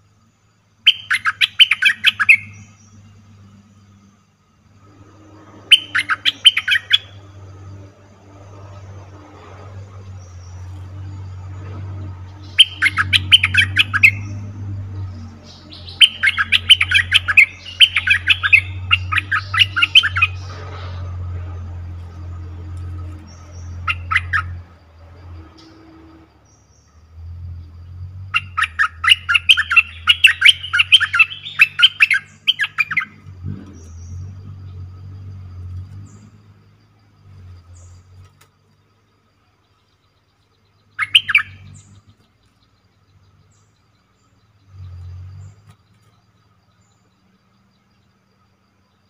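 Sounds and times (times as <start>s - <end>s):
bird chattering: 0.9s - 2.8s, 5.7s - 7.2s, 12.4s - 14.4s, 15.5s - 20.8s, 23.2s - 24.6s, 28.3s - 33.2s, 40.9s - 41.9s.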